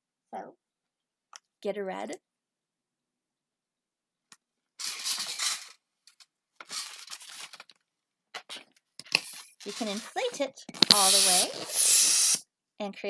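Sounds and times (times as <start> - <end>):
balloon pump whoosh: 10.8 - 12.4.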